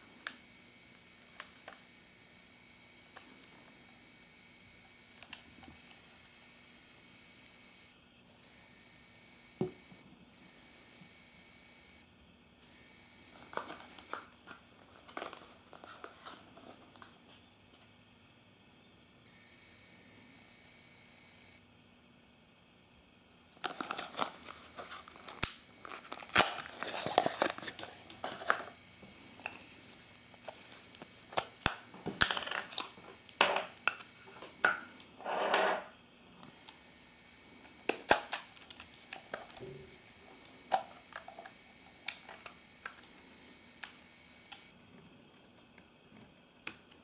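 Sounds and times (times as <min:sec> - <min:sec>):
packaging crinkling: 0:23.6 - 0:33.3.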